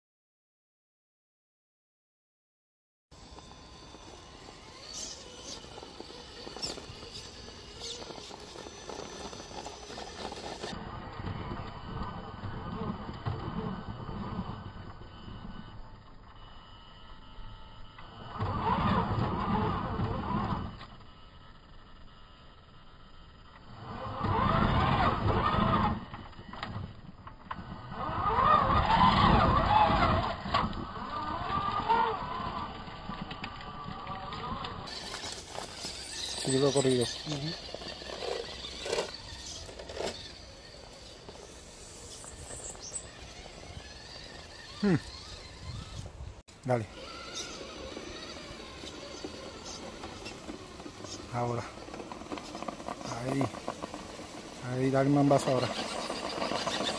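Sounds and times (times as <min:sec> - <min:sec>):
rc car motor whining: 0:03.1 - 0:56.9
tyres scrabbling on rock: 0:03.3 - 0:10.8, 0:28.3 - 0:46.1, 0:46.7 - 0:56.9.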